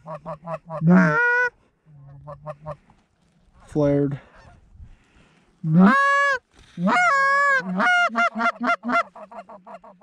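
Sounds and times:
goose honking: 0.0s - 2.8s, 5.6s - 10.0s.

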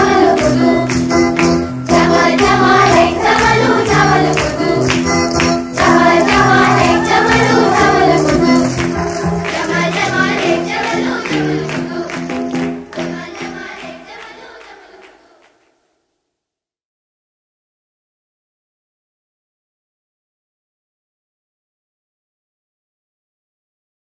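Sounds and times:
music with voices singing: 0.0s - 15.6s.

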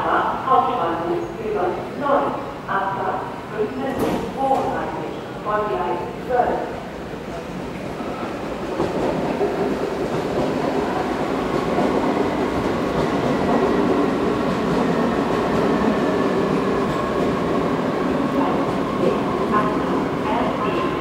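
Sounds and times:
train wheels rumbling on rail: 3.9s - 5.4s, 6.7s - 21.0s.

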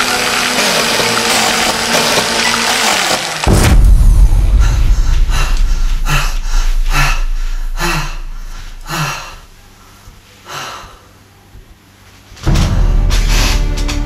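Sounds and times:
low rumble: 3.5s - 10.2s
man gasping and panting: 4.4s - 9.5s.

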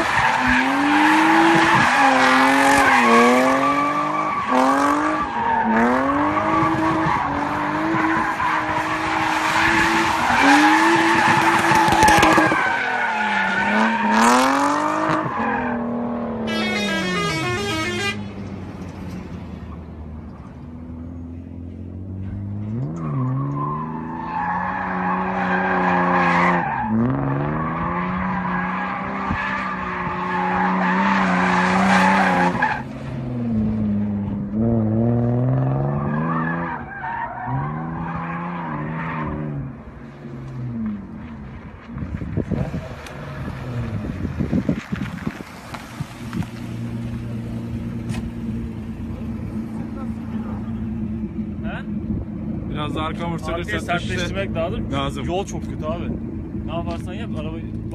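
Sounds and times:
car engine revving: 0.0s - 41.3s, 42.4s - 57.9s
tyres skidding and squealing: 0.0s - 57.9s.

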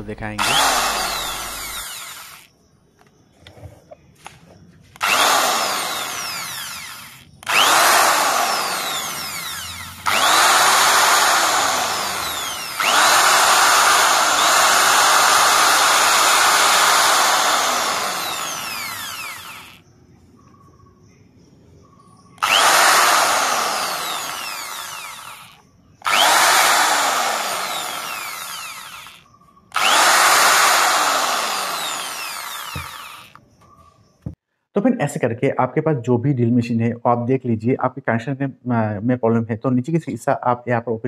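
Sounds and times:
electric drill motor spinning: 0.0s - 2.5s, 4.9s - 19.8s, 22.4s - 33.4s.

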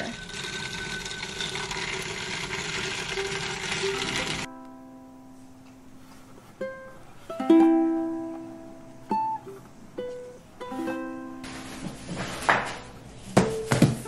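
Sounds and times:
plucked-string melody: 3.1s - 11.8s.

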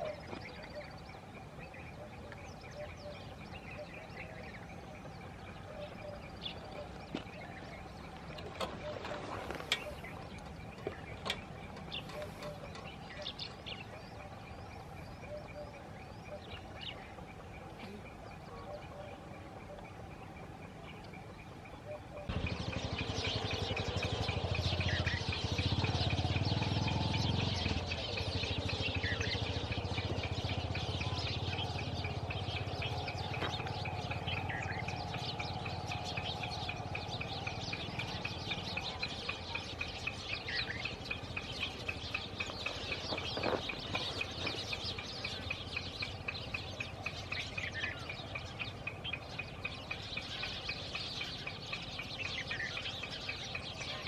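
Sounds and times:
birds chirping and calling: 0.0s - 54.0s.

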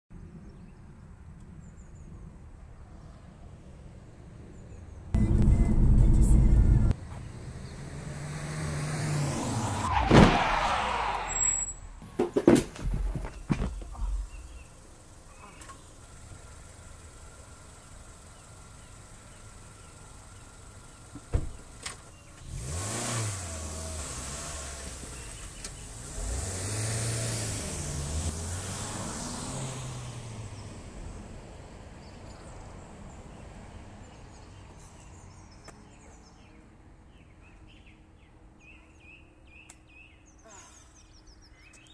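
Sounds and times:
car engine starting and revving: 5.2s - 11.5s, 21.6s - 31.3s
car passing by: 5.2s - 11.7s, 22.4s - 31.2s
faint bird chirps: 13.9s - 16.1s.

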